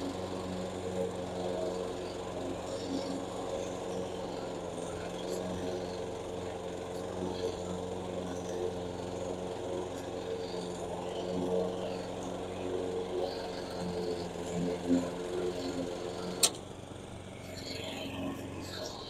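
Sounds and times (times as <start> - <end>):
petrol lawn mowers running: 0.0 - 19.0
sharp click: 16.4 - 16.6.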